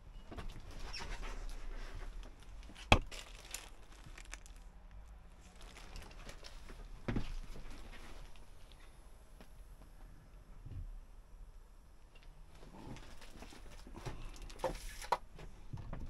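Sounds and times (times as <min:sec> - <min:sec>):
rustling and crinkling handling: 0:00.2 - 0:09.9, 0:12.5 - 0:16.0.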